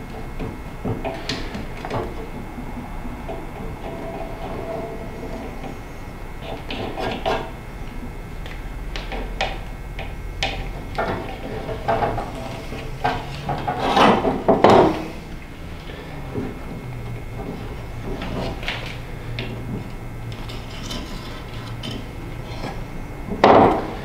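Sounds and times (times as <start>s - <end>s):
scraping on metal lid: 11.0s - 15.2s, 20.4s - 22.9s.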